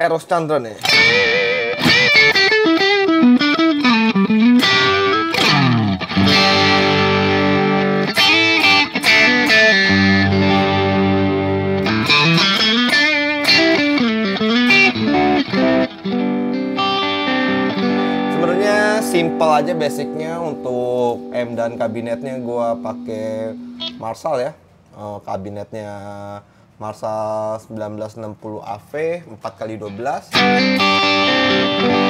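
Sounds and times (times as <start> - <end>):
electric guitar crunch tone: 0.8 - 24.1, 30.3 - 32.0.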